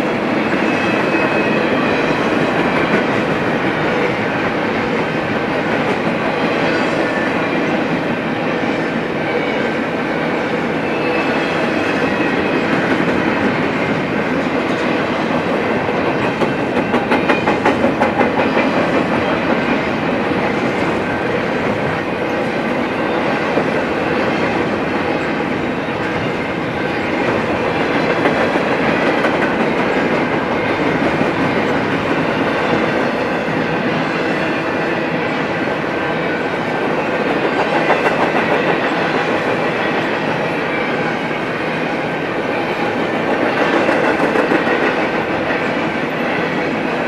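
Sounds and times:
freight train rumble and rattle: 0.0s - 47.0s
wheels clacking over rail joints: 12.5s - 33.3s.

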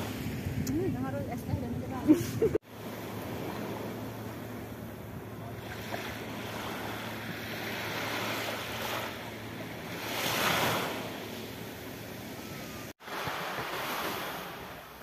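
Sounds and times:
wind on microphone: 0.0s - 2.6s
waves washing onto beach: 2.2s - 15.0s.

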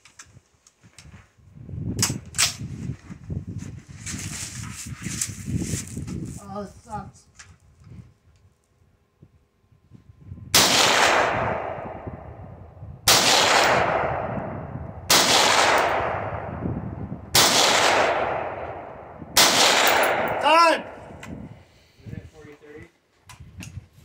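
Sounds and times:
rifle shots with echo: 10.5s - 12.4s, 13.1s - 16.7s, 17.3s - 21.2s.

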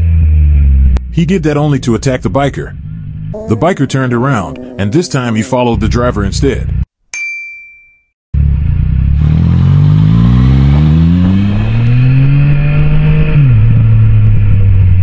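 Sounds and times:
short chime: 7.2s - 8.1s
motorcycle engine pulling away: 8.4s - 15.0s.

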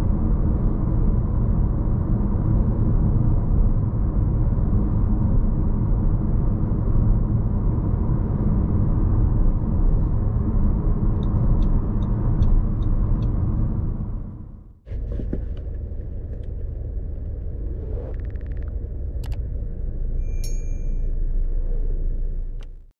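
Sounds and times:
low car cabin rumble: 0.0s - 22.9s
sharp clicks: 18.1s - 19.4s.

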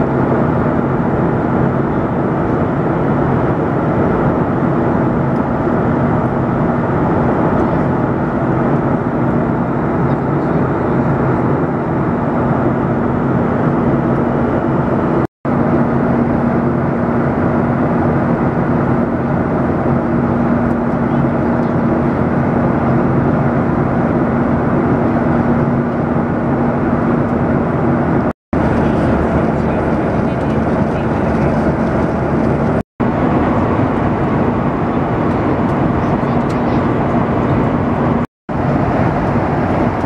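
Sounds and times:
jet engine drone in cabin: 0.0s - 40.0s
low steady hum: 0.0s - 40.0s
rushing airflow: 0.0s - 40.0s.

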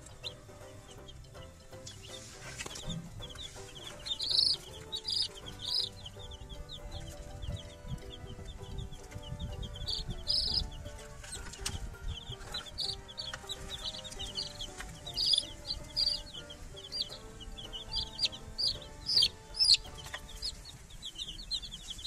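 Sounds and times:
chicks peeping: 0.0s - 22.0s.

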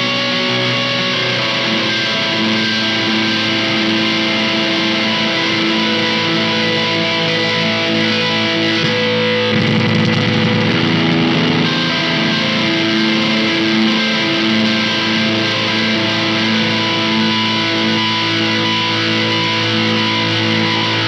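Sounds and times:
electric guitar with effects: 0.0s - 21.0s.

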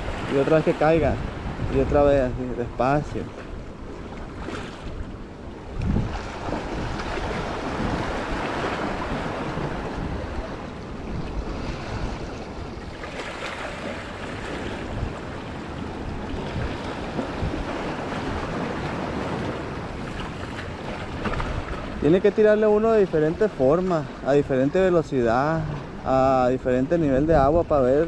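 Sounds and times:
wind buffeting microphone: 0.0s - 28.0s
sea water washing against rocks: 5.6s - 22.3s.

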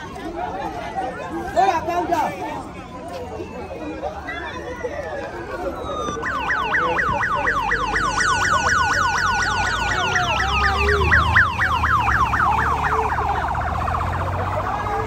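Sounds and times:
siren yelping: 4.6s - 15.0s
steady siren sliding down: 5.0s - 15.0s.

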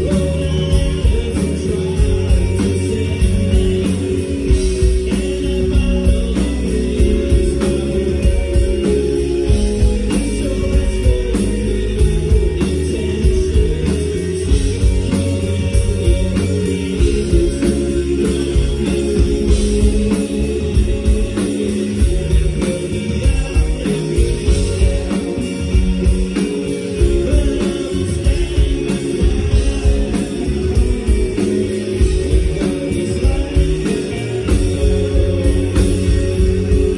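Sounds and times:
bass guitar: 0.0s - 36.9s
drum kit: 0.0s - 36.9s
electric guitars: 0.0s - 36.9s
man singing: 0.0s - 36.9s.

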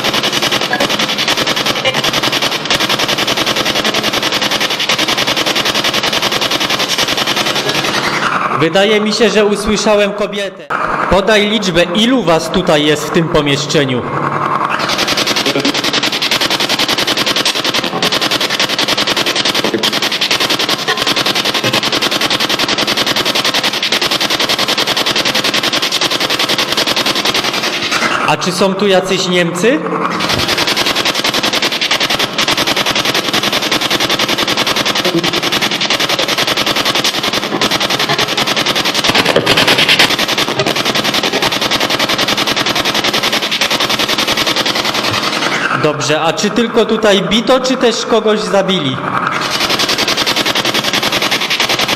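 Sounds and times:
chopped radio static: 0.0s - 22.8s, 26.8s - 41.8s
broken snatches of broadcast: 0.0s - 50.7s.

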